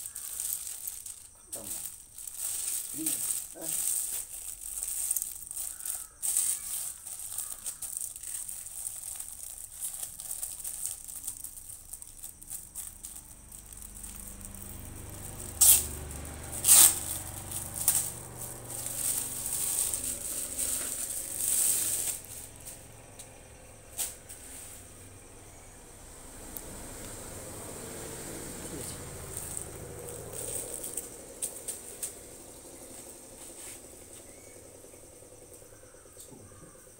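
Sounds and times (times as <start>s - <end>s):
plastic film crinkling: 0.0s - 22.8s, 28.6s - 32.2s.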